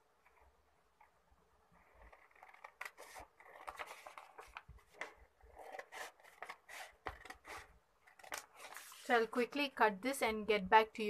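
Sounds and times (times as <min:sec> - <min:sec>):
paper crackling: 0:01.9 - 0:09.2.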